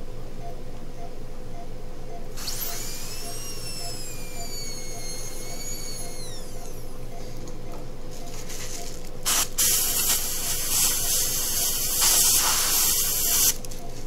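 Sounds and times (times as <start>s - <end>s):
high-pitched dental drill whining: 2.4s - 6.9s, 9.3s - 13.7s.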